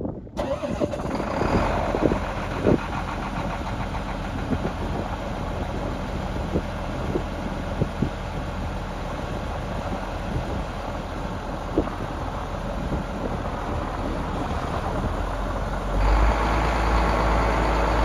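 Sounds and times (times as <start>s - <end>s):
tractor diesel engine idling: 0.4s - 18.0s.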